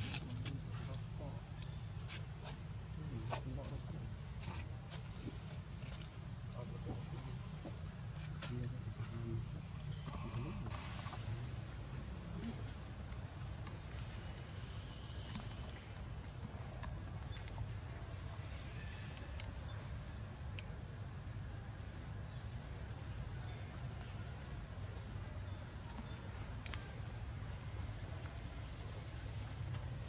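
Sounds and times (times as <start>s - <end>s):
high-pitched insect chorus: 0.0s - 30.0s
faint clicks: 15.0s - 17.6s, 26.0s - 26.9s.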